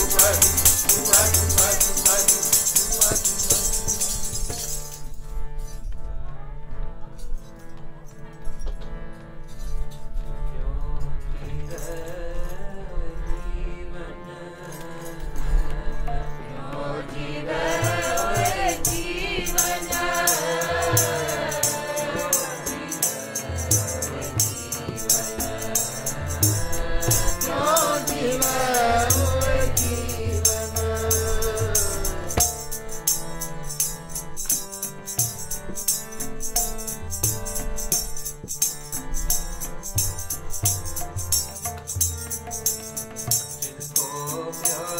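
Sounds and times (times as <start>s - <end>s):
person singing: 0.0s - 3.9s, 10.6s - 32.6s, 43.6s - 44.9s
jingling percussion: 0.0s - 6.0s, 14.6s - 44.9s
tabla: 0.0s - 7.0s, 14.6s - 44.9s
harmonium: 0.0s - 44.9s.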